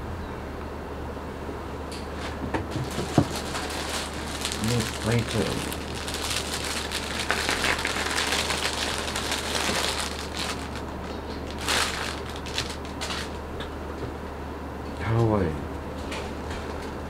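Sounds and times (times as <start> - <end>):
plastic packaging crinkling: 2.7 - 13.4.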